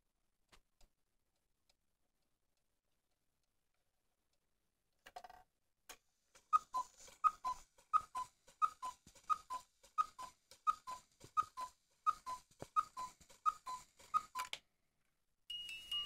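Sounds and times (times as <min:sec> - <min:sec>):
cuckoo clock calling: 0:06.5 - 0:14.6.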